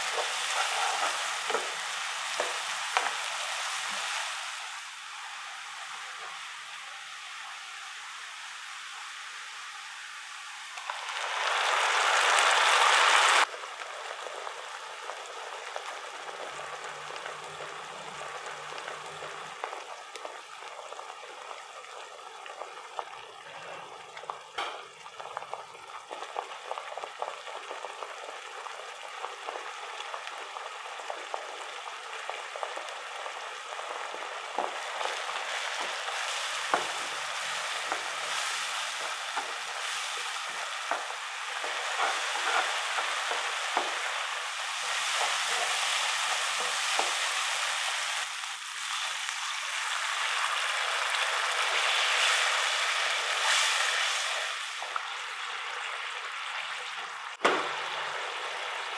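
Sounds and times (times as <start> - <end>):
wooden spatula scraping and stirring: 0.0 - 3.2, 34.5 - 47.4
onions sizzling in hot oil: 0.0 - 58.9.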